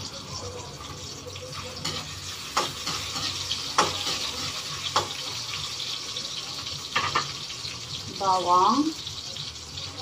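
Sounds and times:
ginger sizzling in oil: 0:00.0 - 0:10.0
metal spatula scraping wok: 0:01.7 - 0:06.0.

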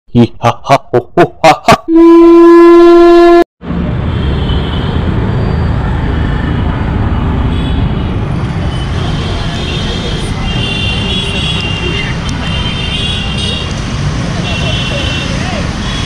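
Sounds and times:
motorbikes and cars on road: 0:03.6 - 0:16.0.

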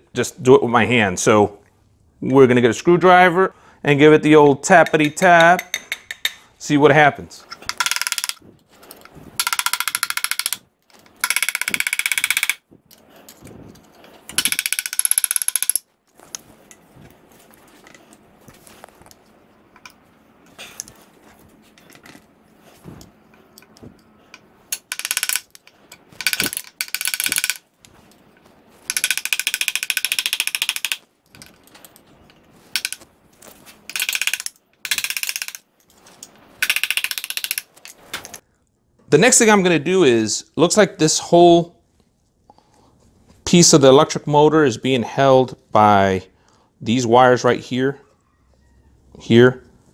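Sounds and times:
tools tapping on metal cover: 0:04.7 - 0:06.5.

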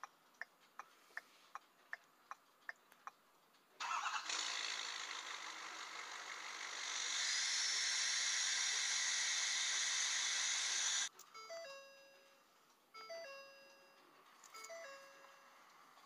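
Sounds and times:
diesel engine exhaust rush: 0:03.8 - 0:11.1.

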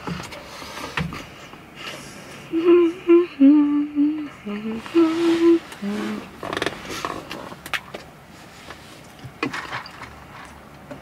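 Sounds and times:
woman humming: 0:02.5 - 0:06.4.

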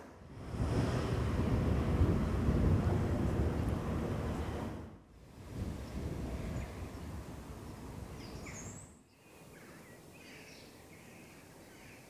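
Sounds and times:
wind rumbling on microphone: 0:00.0 - 0:11.8
small birds chirping: 0:05.8 - 0:12.0.

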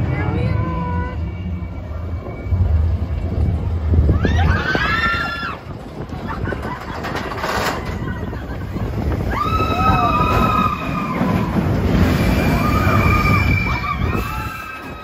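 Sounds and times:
roller coaster rumbling on track: 0:00.0 - 0:15.0
riders screaming: 0:09.2 - 0:15.0.

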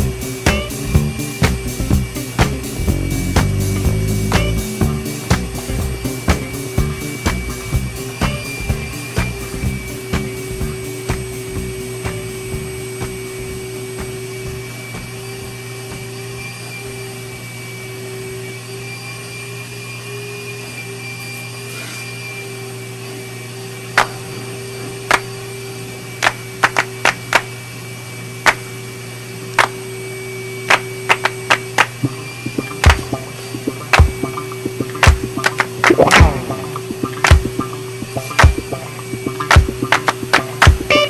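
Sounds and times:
vacuum cleaner running: 0:00.0 - 0:41.0.

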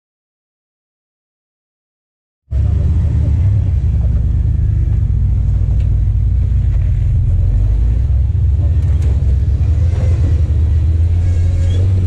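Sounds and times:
engine rumbling under load: 0:02.5 - 0:12.0.

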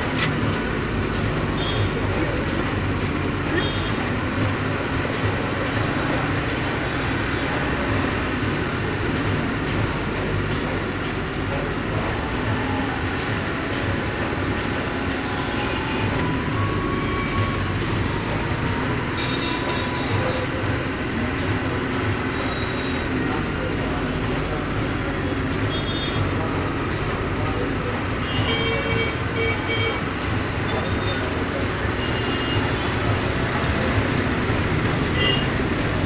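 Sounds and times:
train wheels rumbling on track: 0:00.0 - 0:36.0.

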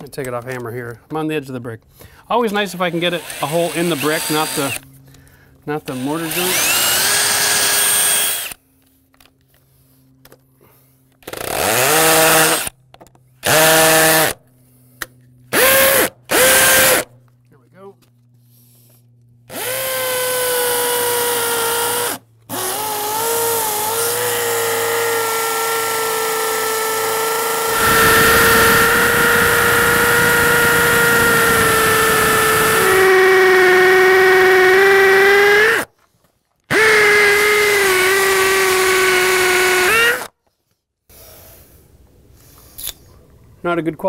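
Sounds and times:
drill bit grinding brick: 0:03.1 - 0:04.8, 0:05.9 - 0:08.6, 0:19.5 - 0:35.9, 0:36.7 - 0:40.3
drill motor whining: 0:03.1 - 0:05.0, 0:05.8 - 0:08.6, 0:11.2 - 0:12.7, 0:13.4 - 0:14.4, 0:15.5 - 0:17.1, 0:19.5 - 0:35.9, 0:36.7 - 0:40.3.

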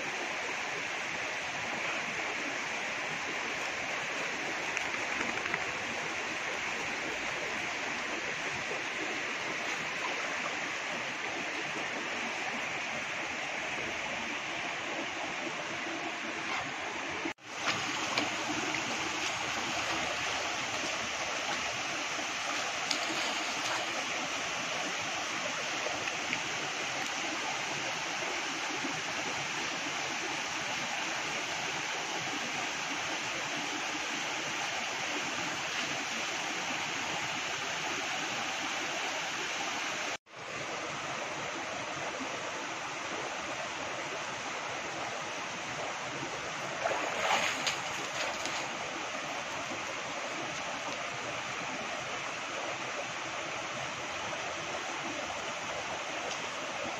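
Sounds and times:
rocky stream rushing: 0:00.0 - 0:56.9.

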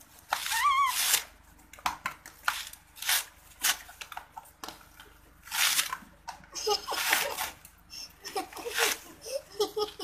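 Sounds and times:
coconut husk fibres ripping: 0:00.0 - 0:01.4.

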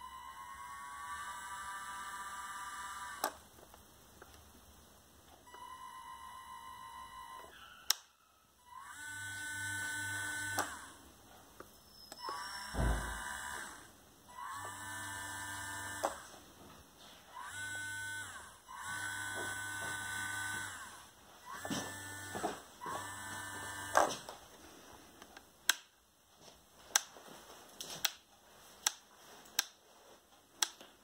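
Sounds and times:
small electric motors whining: 0:00.0 - 0:03.4, 0:08.6 - 0:11.0, 0:12.0 - 0:16.3, 0:17.3 - 0:24.3.

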